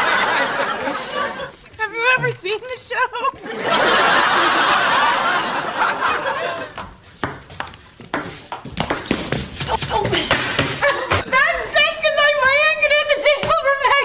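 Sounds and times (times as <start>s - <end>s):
audience laughing: 0.0s - 2.3s, 3.4s - 6.8s.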